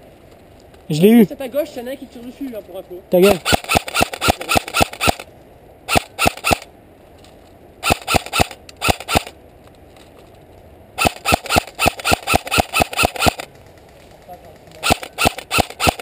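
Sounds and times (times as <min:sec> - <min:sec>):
airsoft gun firing quick shots: 0:03.3 - 0:05.3, 0:05.9 - 0:06.7, 0:07.8 - 0:09.3, 0:11.0 - 0:13.5, 0:14.8 - 0:16.0.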